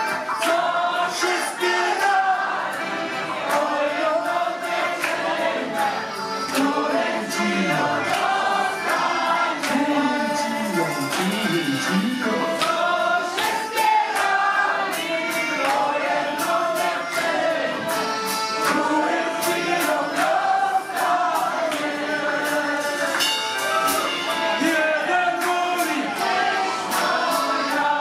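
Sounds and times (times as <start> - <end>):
accordion: 0.0 - 28.0
contrabass balalaika: 0.0 - 28.0
drum kit beat: 0.0 - 28.0
voices singing together: 0.0 - 28.0.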